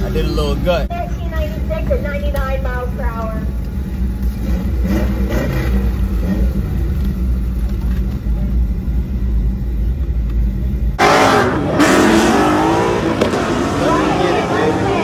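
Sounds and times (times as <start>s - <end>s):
car engine idling: 0.0s - 11.0s
car noise on drag strip: 1.5s - 15.0s.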